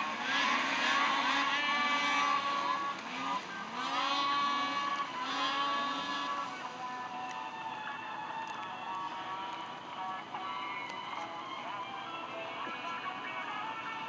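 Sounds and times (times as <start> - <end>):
snowmobile engines revving: 0.0 - 10.8.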